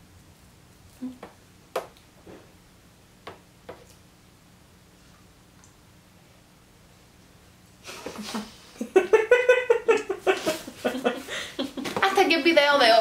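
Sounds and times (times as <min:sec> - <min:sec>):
woman laughing muffled: 0:07.9 - 0:12.1.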